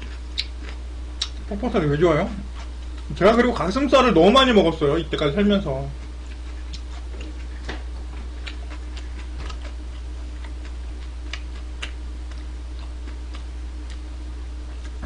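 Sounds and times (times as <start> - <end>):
chewing crunchy food: 0.0 - 1.5, 5.9 - 15.0
low electrical hum: 0.0 - 15.0.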